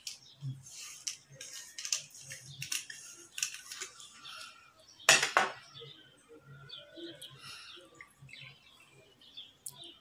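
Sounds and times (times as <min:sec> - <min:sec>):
tableware clicks and rustles: 0:05.1 - 0:05.7.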